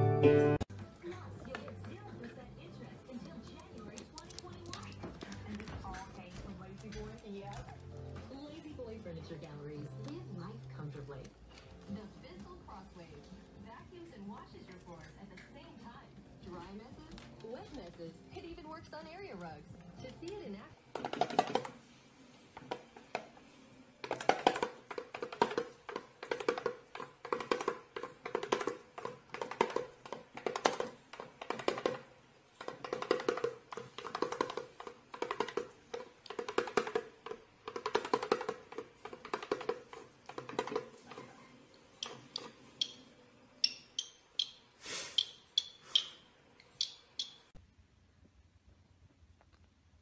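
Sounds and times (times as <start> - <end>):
toy drum tapped: 20.1 - 21.7, 24.1 - 41.1, 42.0 - 44.6, 45.2 - 47.6
cockatiel chirps: 42.0 - 47.5.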